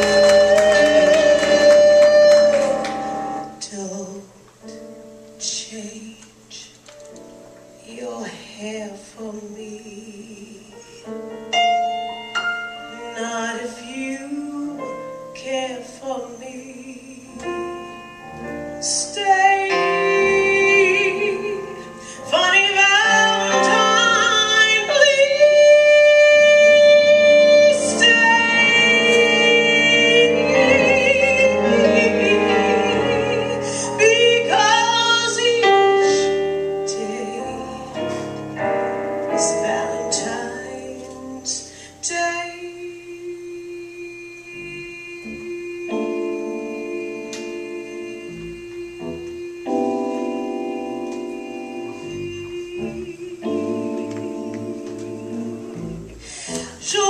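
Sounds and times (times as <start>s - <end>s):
live band with keyboards: 0.0s - 3.6s, 17.4s - 42.0s, 44.6s - 57.0s
woman singing jazz ballad: 0.0s - 57.0s.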